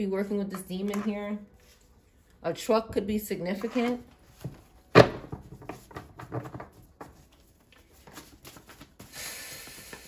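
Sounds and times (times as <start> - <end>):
cards tapping and rustling: 3.6 - 9.1.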